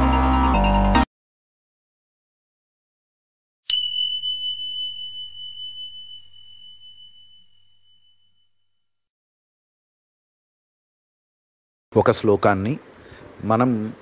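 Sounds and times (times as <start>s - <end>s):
small bell ringing: 3.7s - 9.0s.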